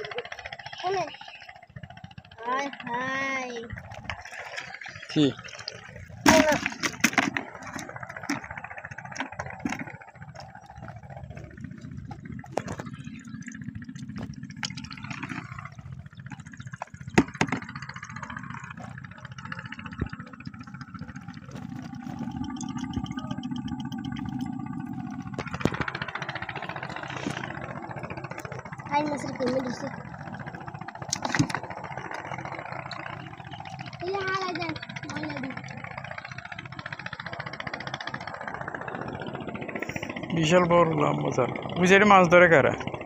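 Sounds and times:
engine running: 0.0 - 43.0
sharp knocks and clicks: 12.0 - 23.2.

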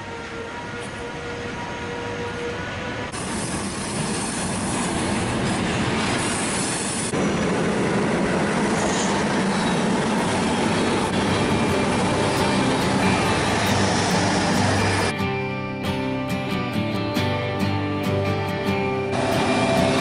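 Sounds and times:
train wheels clattering on track: 2.2 - 15.1, 19.2 - 20.0
high steady whine: 19.0 - 20.0.

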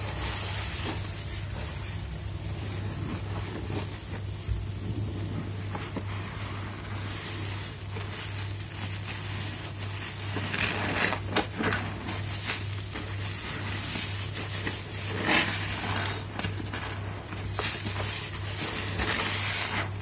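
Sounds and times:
sponges squelching in suds: 0.0 - 20.0.

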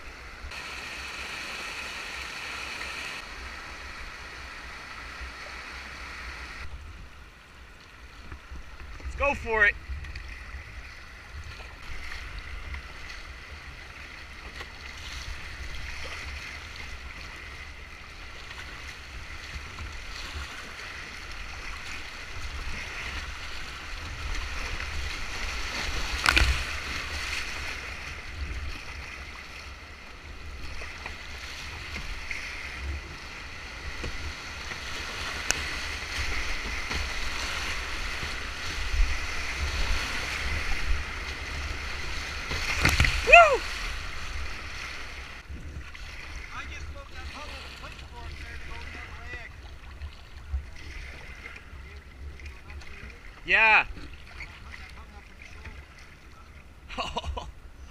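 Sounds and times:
whitewater rushing and splashing: 0.0 - 56.2.

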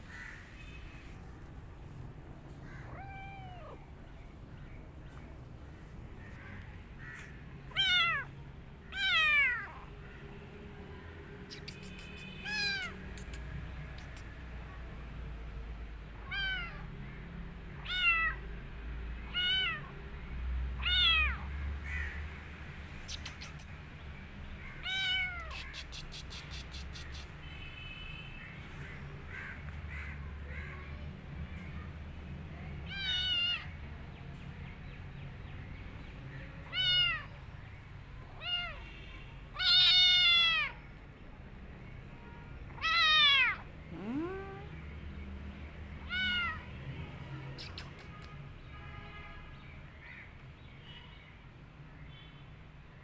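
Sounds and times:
kitten meowing: 2.6 - 3.9, 7.7 - 8.3, 8.9 - 9.8, 11.5 - 13.4, 16.2 - 16.8, 17.8 - 18.4, 19.3 - 19.9, 20.8 - 21.4, 24.8 - 26.1, 32.9 - 33.7, 36.7 - 37.3, 38.4 - 38.8, 39.6 - 40.8, 42.8 - 44.8, 46.0 - 46.7.

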